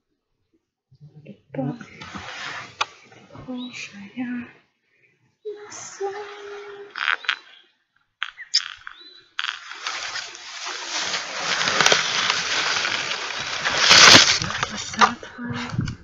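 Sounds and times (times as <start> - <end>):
rustling through reeds and grass: 5.6 - 7.5, 8.5 - 15.2.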